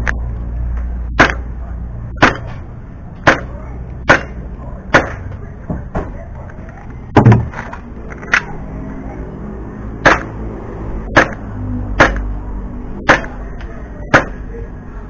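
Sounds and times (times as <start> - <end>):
airsoft pistol shots: 1.2 - 1.5, 10.0 - 10.3, 11.2 - 11.4, 12.0 - 12.3.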